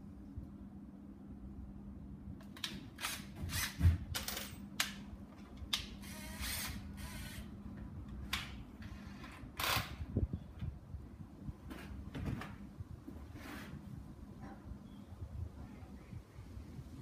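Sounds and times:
clicks and rattles of tools: 2.4 - 6.7
short scraping noises: 13.2 - 14.0.

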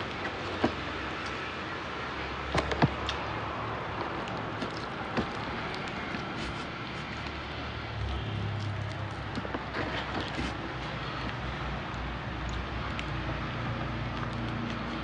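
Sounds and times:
steady background noise: 0.0 - 15.0
food rustling in cardboard box: 4.0 - 7.4, 9.2 - 11.2.

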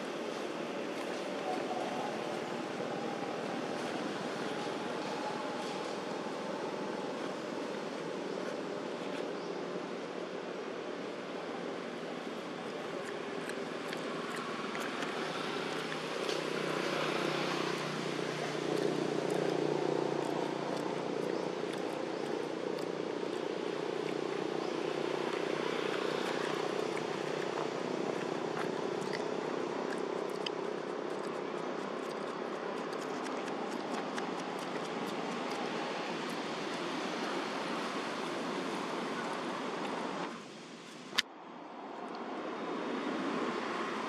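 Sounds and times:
outdoor background noise: 0.0 - 44.0
distant engine drone: 11.0 - 40.2.

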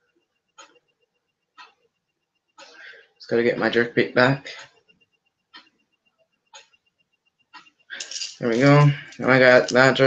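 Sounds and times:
fishing reel ticking: 4.5 - 10.0.

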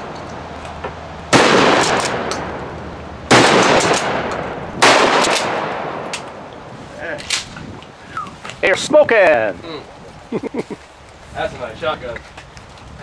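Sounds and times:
shotgun shots: 1.3 - 2.6, 3.3 - 6.3.

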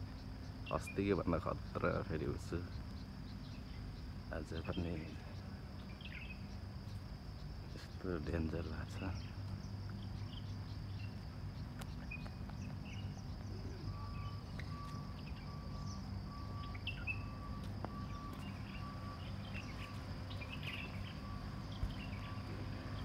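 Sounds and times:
bird chirps: 0.0 - 23.0
faint high whine: 0.0 - 23.0
faint repeating beep tone: 13.0 - 23.0.

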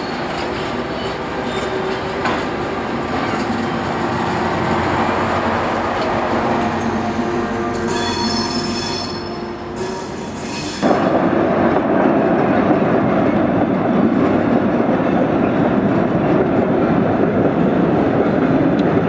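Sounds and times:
rumble of wagons: 0.0 - 7.6, 10.9 - 19.0
diesel locomotive engine droning: 0.0 - 19.0
high wheel squeal: 6.7 - 10.9.

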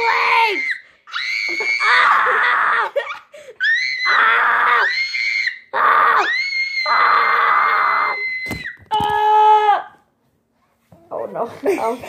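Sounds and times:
child screaming: 0.0 - 3.0, 3.6 - 10.0.

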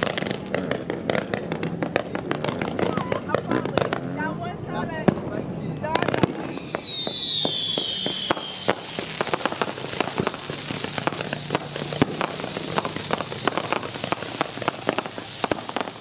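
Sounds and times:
fireworks crackling and banging: 0.0 - 16.0
falling firework whistle: 6.0 - 16.0
steady high whistle: 6.2 - 16.0.

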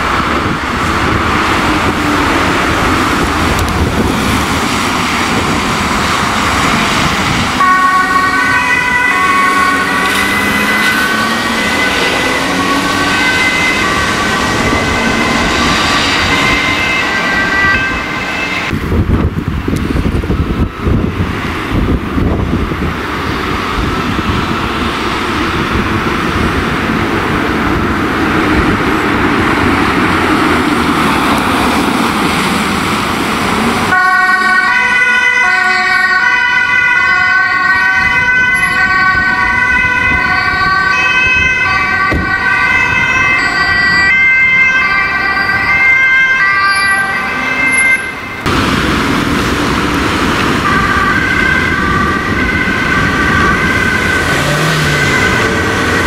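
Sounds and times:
vehicle road noise passing: 0.0 - 56.0
ambulance two-tone siren: 7.6 - 18.8, 33.9 - 48.6, 50.4 - 56.0.

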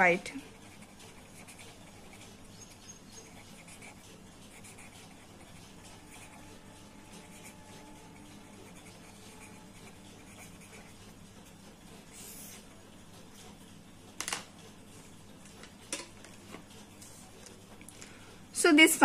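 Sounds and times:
pen scratching on paper: 0.6 - 11.0.

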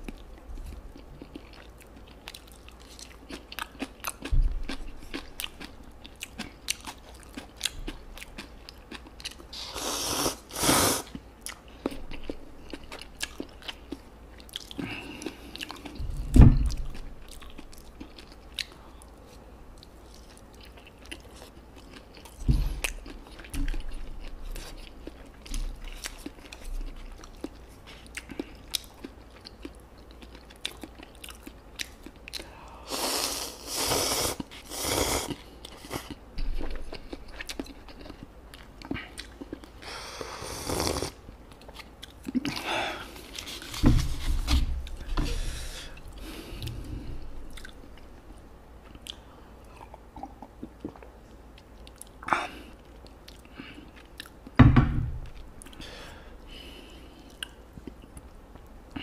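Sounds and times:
wet chewing and crunching: 0.0 - 9.7, 11.1 - 32.8, 34.3 - 40.0, 41.0 - 45.2, 45.9 - 54.6
low thumps: 16.0 - 16.9.

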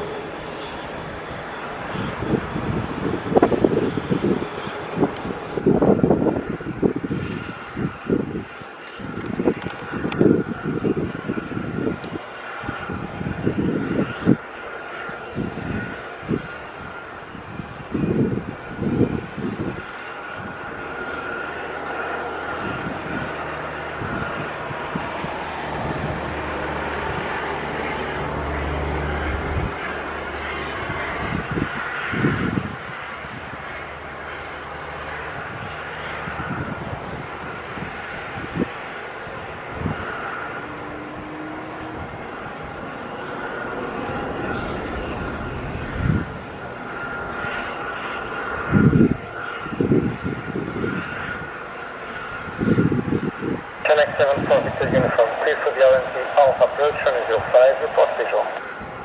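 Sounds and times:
jet airliner high whine: 0.0 - 59.0
low engine rumble: 17.6 - 50.8, 51.6 - 59.0.

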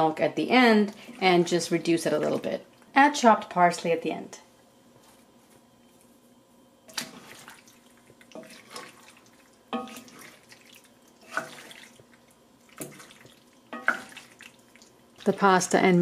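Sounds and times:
wet squelching of stirred sauce: 6.9 - 15.4
spoon knocking and scraping pan: 9.7 - 10.3, 12.8 - 14.3.

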